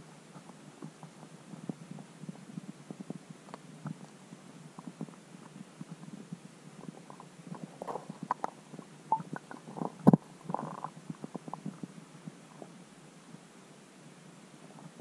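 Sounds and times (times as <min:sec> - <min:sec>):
underwater clicks and knocks: 0:06.8 - 0:11.9.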